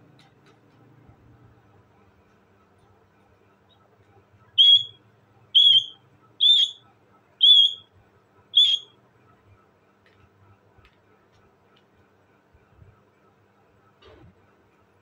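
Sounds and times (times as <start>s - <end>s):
parakeet calling: 4.6s - 5.0s, 5.6s - 6.8s, 7.4s - 7.8s, 8.6s - 8.9s.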